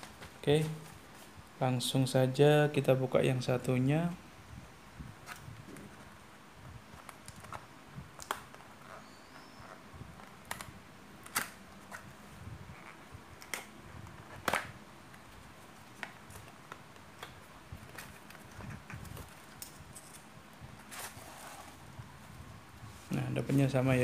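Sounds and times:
soft rustling: 17.7s - 24.0s.

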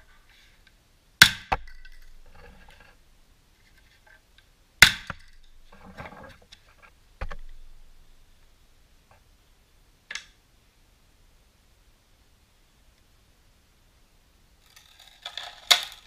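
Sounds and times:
pellets clicking on plastic sheet: 14.6s - 16.0s.

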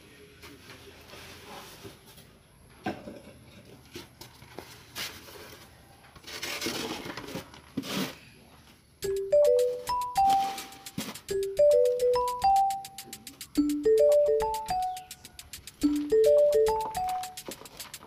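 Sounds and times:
rustling and scraping on foam box: 0.5s - 2.4s, 3.7s - 8.5s
bright chime music: 9.0s - 17.5s.

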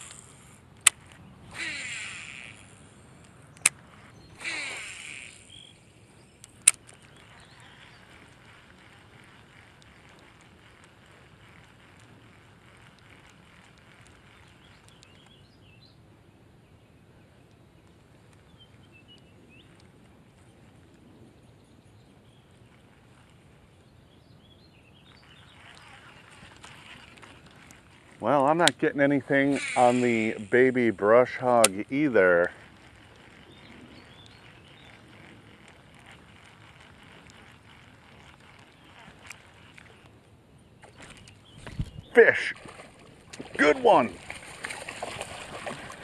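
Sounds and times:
soft hiss with ticks: 0.0s - 1.2s, 2.0s - 15.5s, 17.3s - 23.9s, 25.0s - 40.4s
reel sharp click: 0.0s - 5.8s, 6.4s - 15.4s, 25.2s - 40.2s
reel spool whirring: 0.0s - 15.4s, 22.1s - 24.0s, 25.0s - 46.0s
bird chirps: 3.4s - 10.1s, 14.0s - 16.0s, 21.4s - 27.2s, 31.8s - 36.8s.

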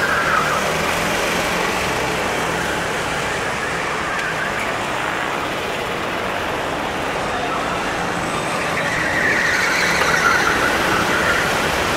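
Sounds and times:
kart engines racing: 0.0s - 11.9s
steady rushing noise: 0.7s - 9.1s
kart passing close: 8.3s - 11.9s.

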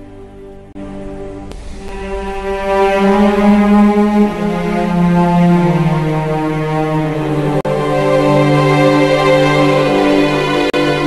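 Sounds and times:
sustained notes and chords: 0.0s - 11.0s.

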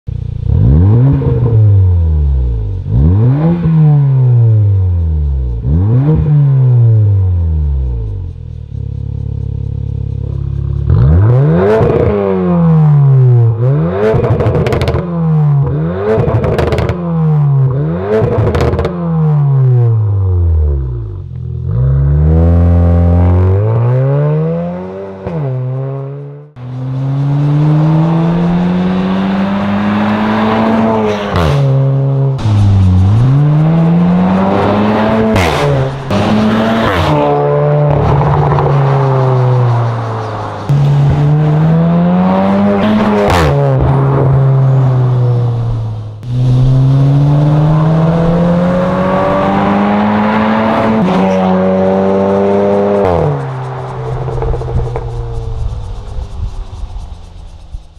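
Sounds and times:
car engine revving: 0.3s - 57.6s
exhaust pops: 52.7s - 57.9s.

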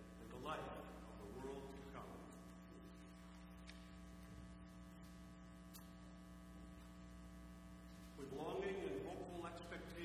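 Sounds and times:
electrical mains hum: 0.0s - 10.0s.

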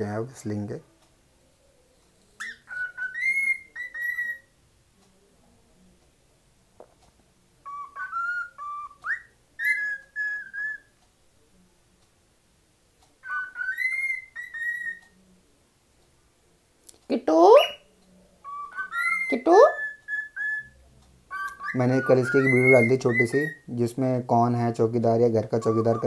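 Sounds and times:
cockatiel whistling: 2.4s - 4.5s, 7.6s - 10.9s, 13.2s - 15.1s, 18.4s - 23.7s, 25.6s - 26.0s.

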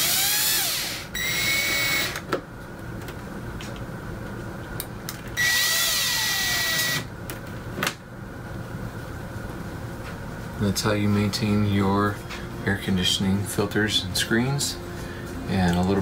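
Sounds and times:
cordless drill driving screws: 0.0s - 2.2s, 5.4s - 7.0s.

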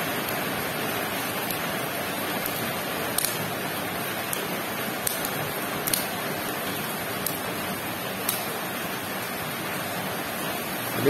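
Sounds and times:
steady hiss: 0.0s - 11.0s
bubble wrap and tape crackling: 1.1s - 8.6s.

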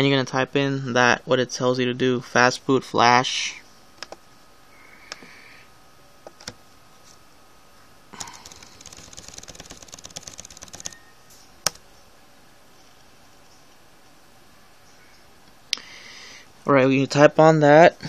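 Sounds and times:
keyboard typing: 4.0s - 4.2s, 6.3s - 6.6s, 8.2s - 11.0s.

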